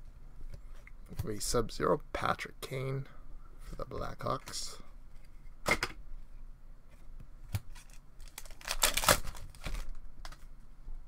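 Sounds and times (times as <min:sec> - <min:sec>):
foil wrapper tearing and crinkling: 0:07.8 - 0:10.0.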